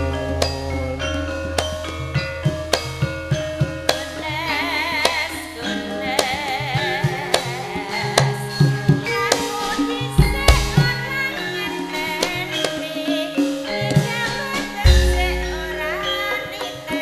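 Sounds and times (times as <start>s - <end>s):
metallophone notes: 0.0s - 17.0s
woman singing: 3.8s - 17.0s.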